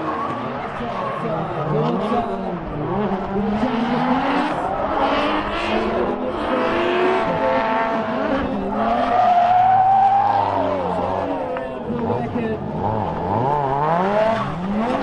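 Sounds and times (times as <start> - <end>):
car engines revving: 0.0 - 15.0.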